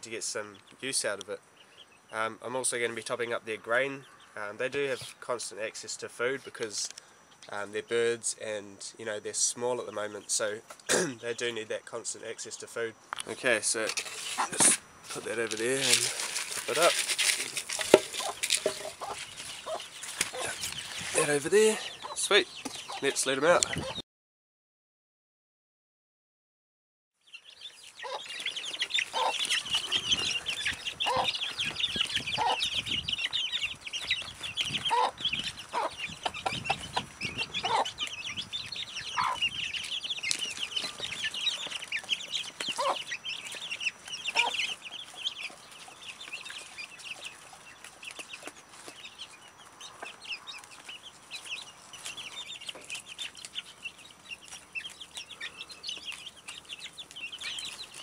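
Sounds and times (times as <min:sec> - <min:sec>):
chicks peeping: 0:00.1 - 0:24.0, 0:27.3 - 0:58.0
hen clucking: 0:14.2 - 0:24.0, 0:27.9 - 0:58.0.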